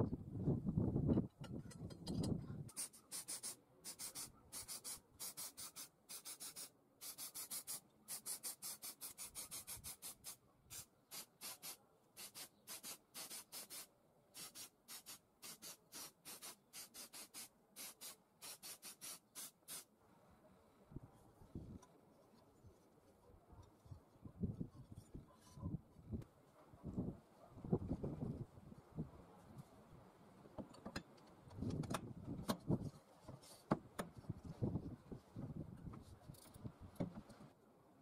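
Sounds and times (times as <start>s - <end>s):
spray paint can hissing: 2.7s - 19.9s.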